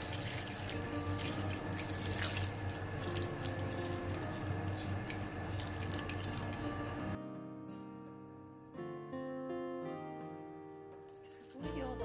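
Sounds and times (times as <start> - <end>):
water pouring into metal pot: 0.0 - 6.7.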